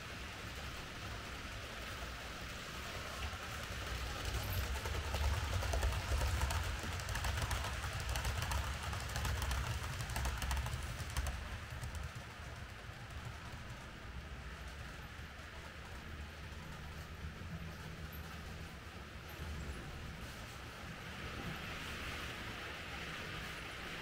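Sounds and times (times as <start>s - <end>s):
model train motor hum: 0.0s - 18.2s
wheels clicking over track: 0.0s - 24.0s.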